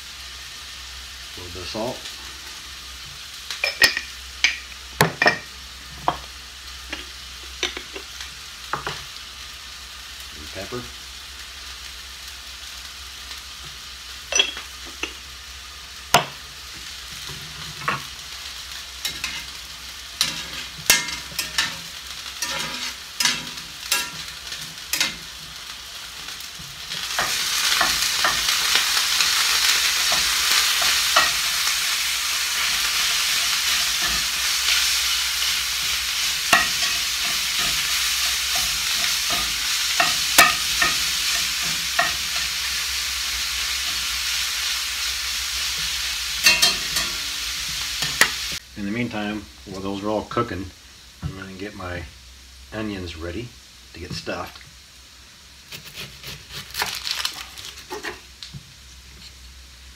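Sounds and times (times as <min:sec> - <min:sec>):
meat sizzling: 0:00.0 - 0:59.9
metal spatula scraping skillet: 0:19.0 - 0:19.6, 0:20.2 - 0:25.4, 0:26.9 - 0:42.8.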